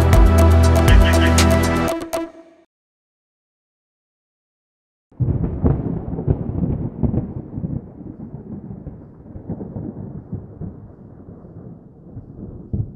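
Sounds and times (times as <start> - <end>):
rolling thunder: 5.2 - 12.9.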